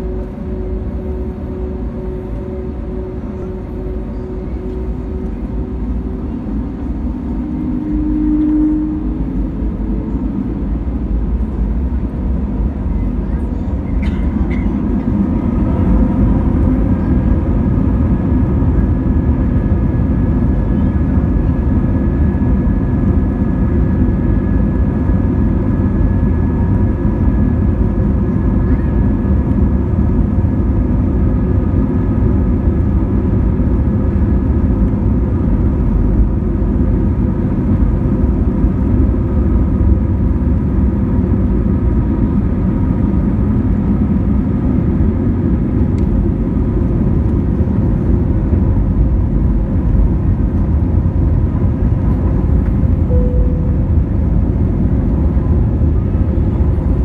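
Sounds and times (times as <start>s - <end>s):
faint whining tones: 0.0s - 29.5s, 50.8s - 57.0s
jet engine roar: 0.0s - 57.0s.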